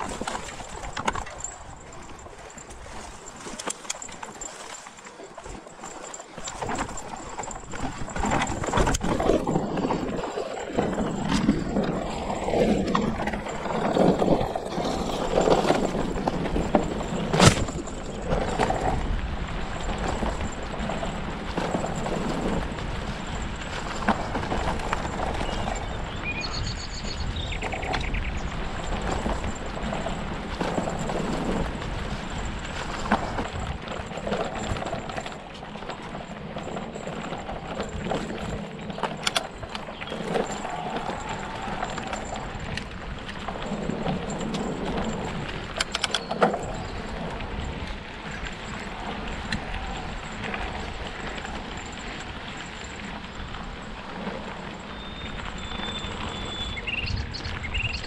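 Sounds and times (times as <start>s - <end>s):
bike frame and chain clattering: 0.0s - 58.0s
bike tyres rolling on dirt: 6.3s - 58.0s
bird chirping: 25.6s - 28.4s, 55.0s - 58.0s.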